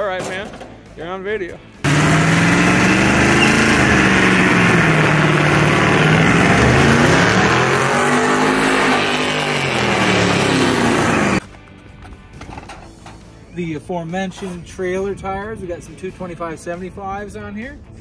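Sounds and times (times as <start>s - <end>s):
pickup truck engine revving: 1.8s - 11.4s
tires spinning on wet pavement: 1.8s - 11.4s.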